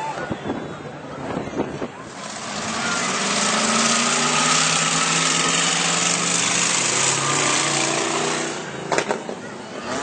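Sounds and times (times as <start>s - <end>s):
car engine droning: 2.1s - 10.0s.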